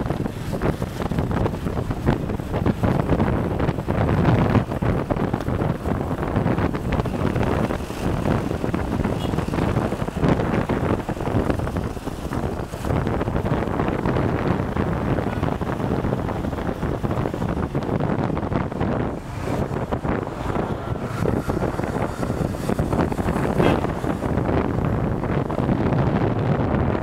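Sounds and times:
road noise: 0.0 - 27.0
wind buffeting microphone: 0.0 - 27.0.

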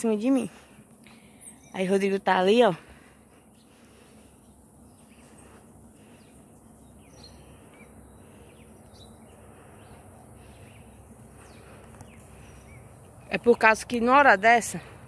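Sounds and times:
bird chirps: 1.0 - 2.0, 4.4 - 13.8.

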